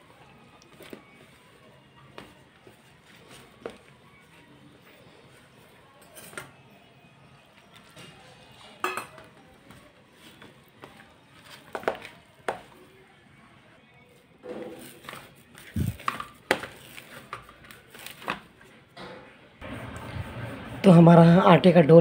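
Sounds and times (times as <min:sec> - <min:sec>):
hands kneading dough: 0:14.8 - 0:18.7.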